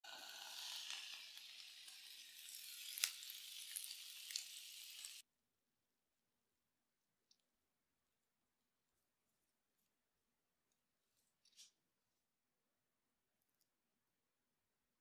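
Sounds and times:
food sizzling in a pan: 0:00.0 - 0:05.2.

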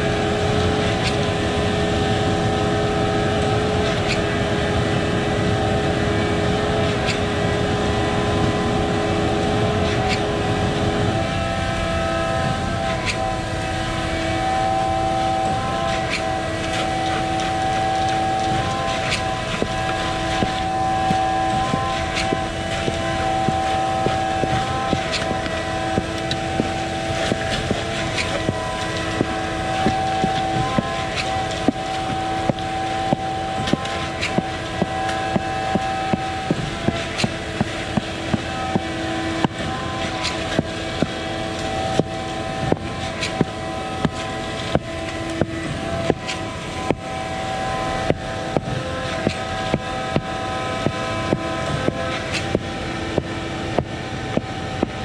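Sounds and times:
concrete pump truck running: 0:00.0 - 0:55.0.

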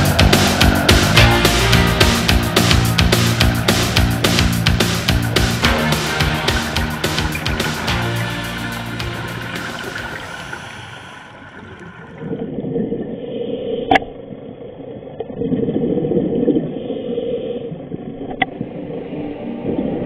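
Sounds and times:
scuba bubbles rushing underwater: 0:00.0 - 0:13.2.

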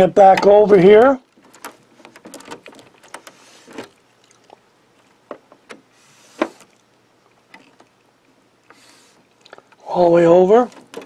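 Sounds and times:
plastic clicks and knocks: 0:05.2 - 0:06.7, 0:10.7 - 0:11.0.

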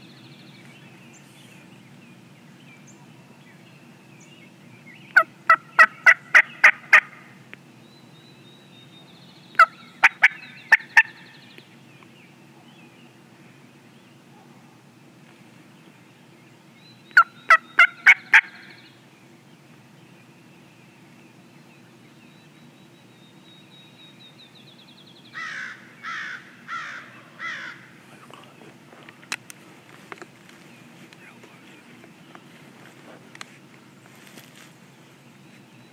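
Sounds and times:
wild turkey yelping: 0:05.1 - 0:07.3, 0:09.5 - 0:11.3, 0:17.1 - 0:18.8, 0:25.3 - 0:27.9.

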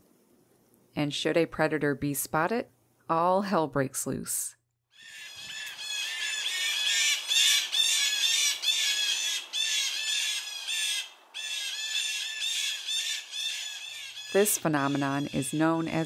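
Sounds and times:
blue jays harsh mobbing calls: 0:05.0 - 0:16.0.

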